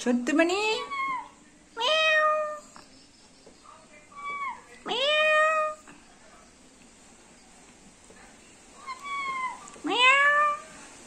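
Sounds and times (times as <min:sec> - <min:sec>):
parrot mimicking cat meow: 0:00.7 - 0:02.6, 0:04.2 - 0:05.8, 0:08.8 - 0:10.6.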